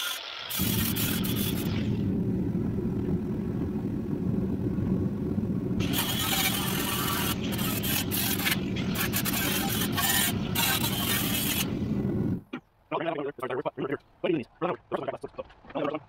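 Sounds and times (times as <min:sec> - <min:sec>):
angle grinder grinding sheet steel: 0:00.0 - 0:02.0, 0:05.8 - 0:11.9
low rumble: 0:00.6 - 0:12.5.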